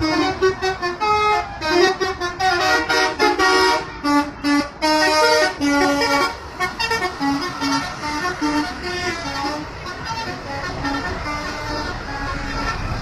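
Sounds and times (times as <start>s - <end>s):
multi-tone bus horn tune: 0.0s - 13.0s
road and engine noise: 0.0s - 13.0s.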